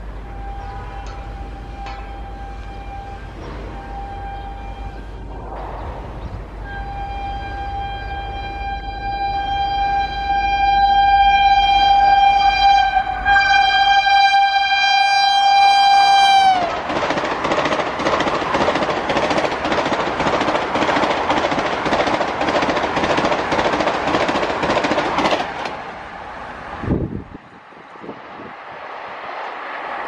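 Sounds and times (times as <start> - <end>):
train horn: 0.0 - 5.3, 6.6 - 16.8
train coaches rushing and clattering: 0.0 - 30.0.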